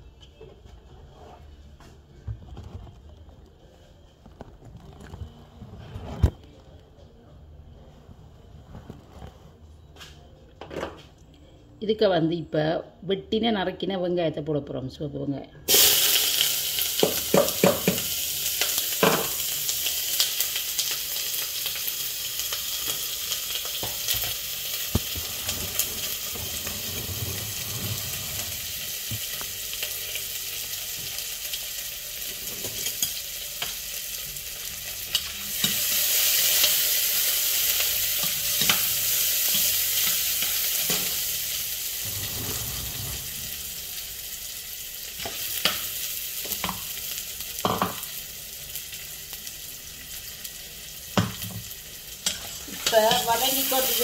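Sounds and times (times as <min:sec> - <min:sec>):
onions sizzling in oil: 0:15.7 - 0:54.0.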